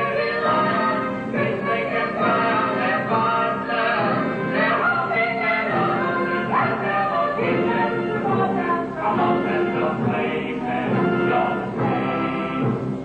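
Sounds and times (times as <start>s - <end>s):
group singing: 0.0s - 12.9s
instrumental accompaniment: 0.0s - 13.0s.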